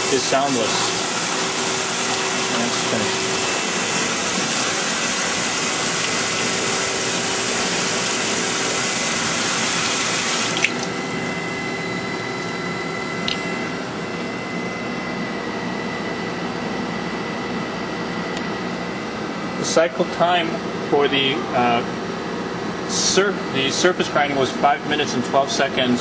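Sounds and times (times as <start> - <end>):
coolant spraying hiss: 0.0 - 10.9
grinder running hum: 0.0 - 15.9.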